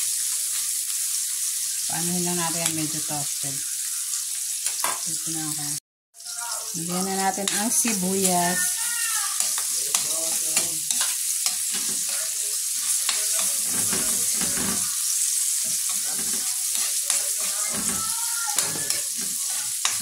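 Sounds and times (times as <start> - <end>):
garlic and onion sizzling in oil: 0.0 - 20.0
metal spatula scraping a wok: 9.4 - 20.0.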